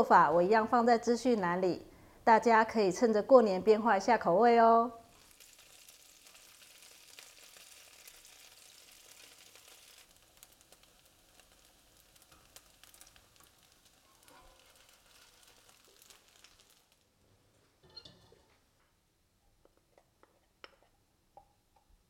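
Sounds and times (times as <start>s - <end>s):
food sizzling in oil: 5.1s - 17.1s
small crackles: 5.1s - 18.9s.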